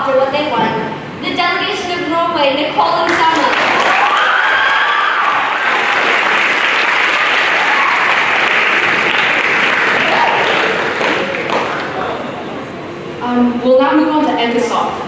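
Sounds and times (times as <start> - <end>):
audience applauding: 3.3 - 12.3.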